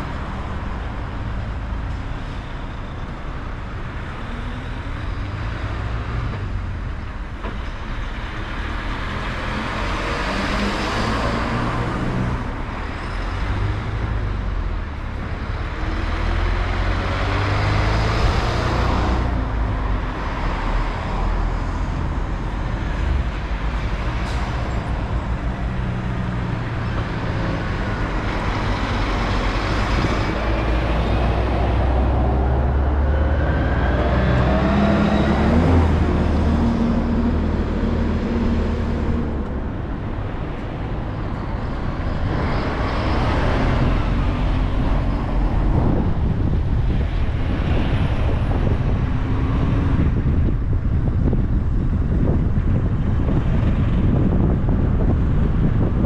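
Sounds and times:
tyre noise on road: 0.0 - 56.0
car engine rumble: 16.6 - 56.0.

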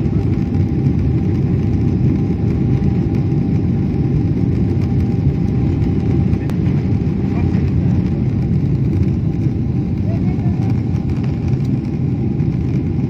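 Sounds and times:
jet engines and wheels rumbling: 0.0 - 13.0.

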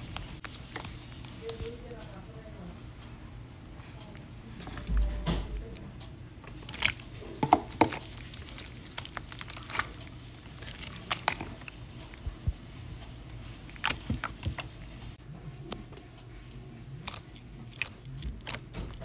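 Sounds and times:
slime squishing and popping: 6.5 - 12.3, 13.7 - 14.8, 17.0 - 19.0.

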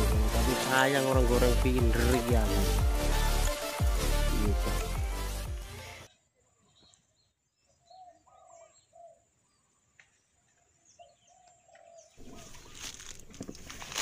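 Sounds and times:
small birds chirping: 6.0 - 13.2.

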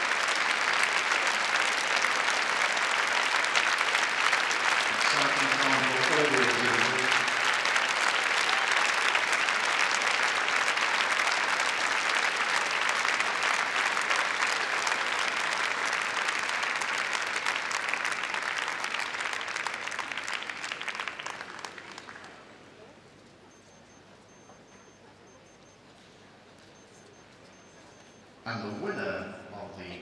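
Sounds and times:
audience applauding: 0.0 - 22.9.

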